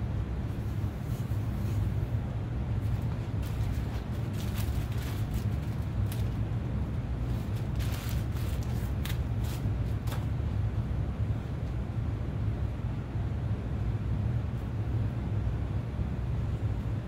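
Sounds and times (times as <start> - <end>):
low workshop rumble: 0.0 - 17.0
soft rustles and cloth wipes: 0.4 - 6.5, 7.1 - 10.3.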